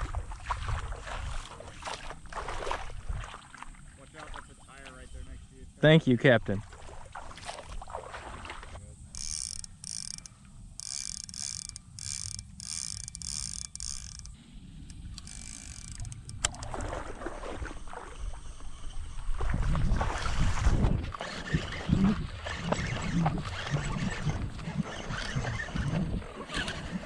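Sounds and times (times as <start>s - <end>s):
fishing reel whirring: 8.8s - 16.9s, 21.1s - 27.0s.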